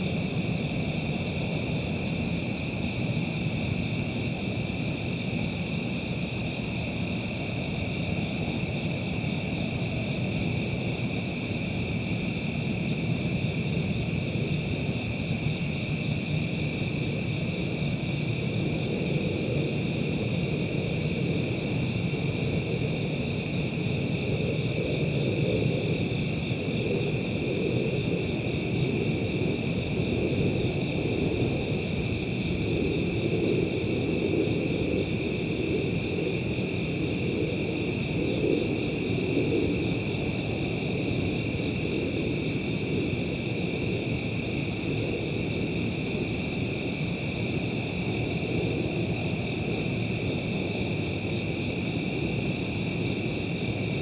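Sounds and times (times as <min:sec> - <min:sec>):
high-pitched insect chorus: 0:00.0 - 0:54.0.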